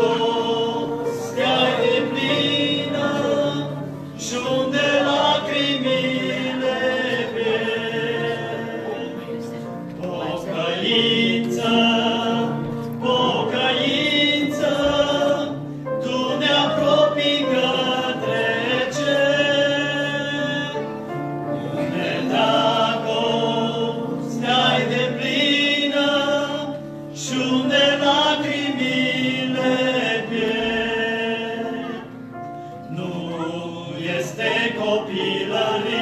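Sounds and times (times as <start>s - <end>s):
group singing a hymn: 0.0s - 36.0s
singers breathing: 32.4s - 32.9s.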